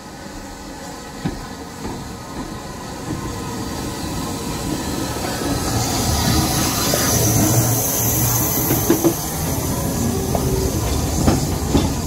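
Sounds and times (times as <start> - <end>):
train running on rails: 0.0 - 12.0.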